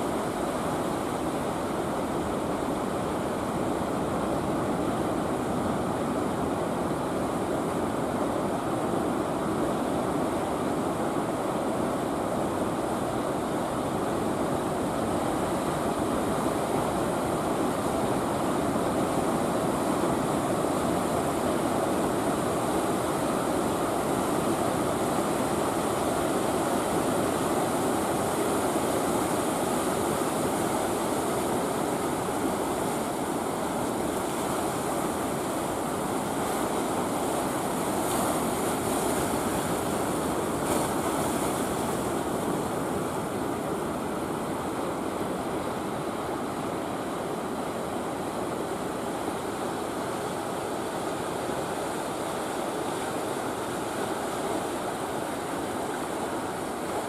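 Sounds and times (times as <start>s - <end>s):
ocean waves breaking: 15.0s - 52.4s.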